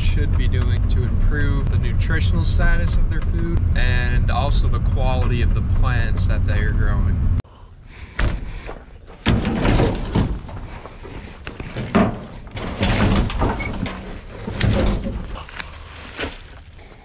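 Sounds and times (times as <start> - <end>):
branches scraping and rattling: 9.1 - 17.0
wood knocking on truck: 9.2 - 15.4.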